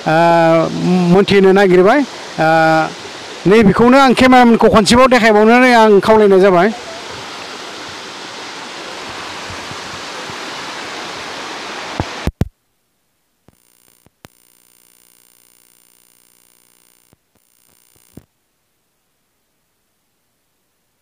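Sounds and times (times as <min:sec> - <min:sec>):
floodwater rushing: 0:00.0 - 0:12.3
faint buzz: 0:13.4 - 0:19.2
clicks: 0:15.6 - 0:18.3.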